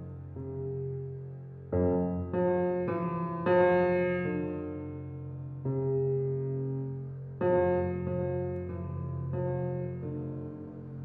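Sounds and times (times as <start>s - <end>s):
slow piano chords: 0.0s - 11.0s.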